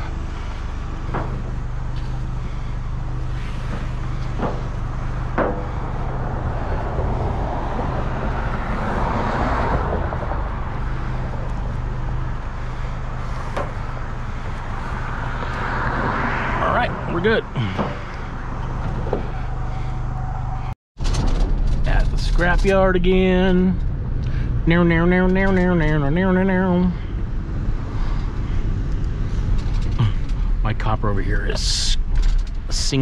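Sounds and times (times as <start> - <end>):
vehicle engine running: 0.0 - 33.0
sharp knocks: 3.7 - 5.9.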